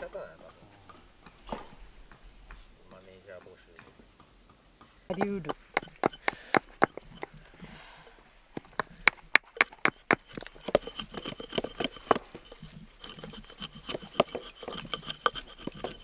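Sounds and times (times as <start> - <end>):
hatchet chopping wood: 5.1 - 7.5, 8.6 - 16.0.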